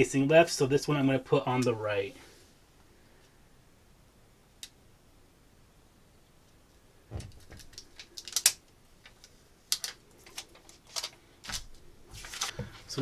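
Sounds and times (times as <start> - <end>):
vinyl pieces tapping and crinkling: 7.2 - 13.0.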